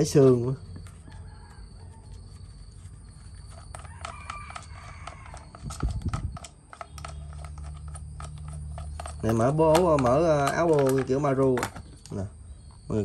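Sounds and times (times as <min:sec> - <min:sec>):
rooster crowing: 0:00.8 - 0:02.5, 0:03.6 - 0:05.8
plastic clicks and rattles: 0:03.5 - 0:12.2.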